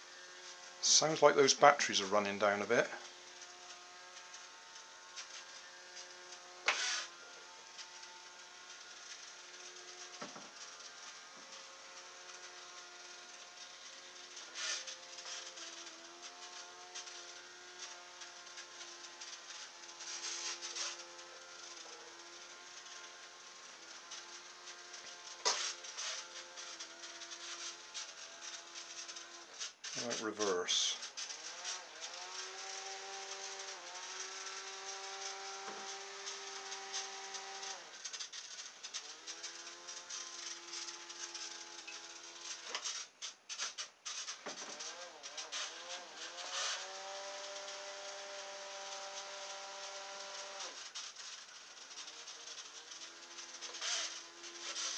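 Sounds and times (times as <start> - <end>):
small motor whirring hum: 0.0 - 54.9.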